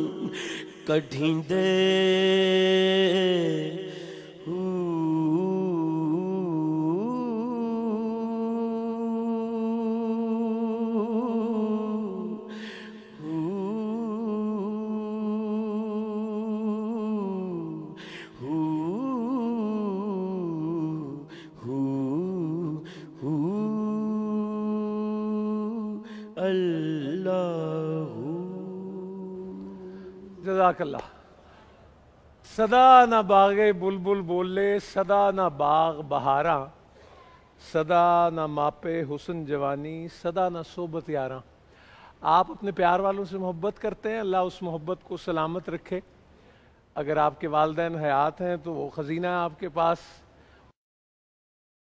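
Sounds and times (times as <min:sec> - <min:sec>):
man singing: 0:00.0 - 0:31.1, 0:32.5 - 0:36.7.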